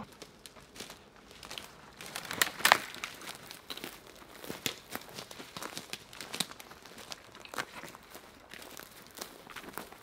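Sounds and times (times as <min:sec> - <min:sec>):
footsteps crunching on forest floor: 0:00.0 - 0:10.0
twigs snapping underfoot: 0:00.1 - 0:10.0.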